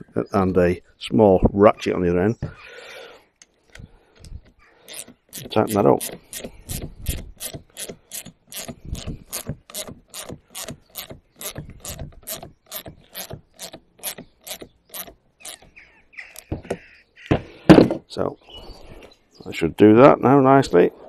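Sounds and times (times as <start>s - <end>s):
socket ratchet clicking: 4.9s - 15.7s.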